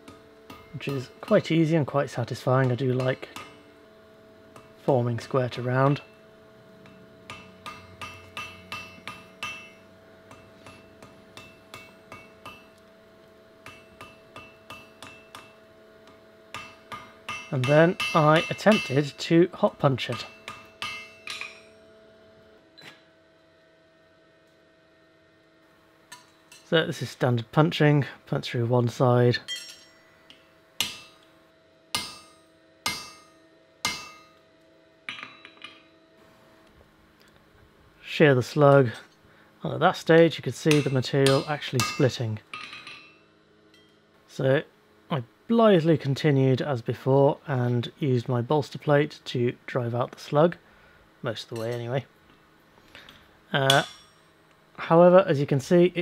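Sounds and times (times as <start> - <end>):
hammer striking iron on anvil: 0.0 - 1.5, 2.6 - 3.7, 4.5 - 4.8, 6.8 - 12.8, 13.6 - 19.2, 20.0 - 21.9, 26.1 - 26.7, 29.5 - 30.1, 30.8 - 31.3, 31.9 - 34.4, 35.1 - 36.0, 40.7 - 44.0, 53.6 - 54.3
steady ringing tone: 5.8 - 12.8, 20.2 - 22.2, 40.8 - 44.1.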